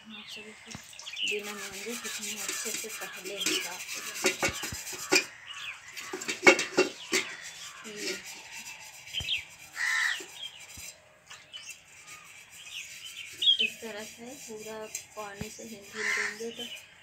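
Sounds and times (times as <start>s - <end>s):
birds chirping: 0.0s - 17.0s
hand rubbing metal pot: 0.9s - 17.0s
metal scrapes and clinks: 1.2s - 16.8s
crow cawing: 1.5s - 10.4s, 11.9s - 12.5s, 15.9s - 16.5s.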